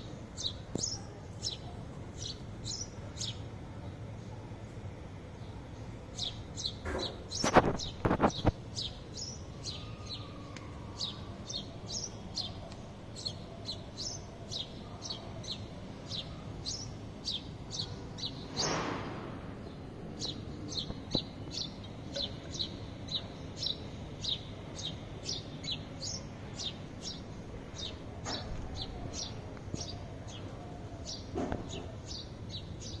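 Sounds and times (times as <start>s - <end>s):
sparrows chirping: 0.0s - 33.0s
loud sharp knocks: 6.8s - 8.2s, 18.5s - 19.5s, 31.3s - 31.8s.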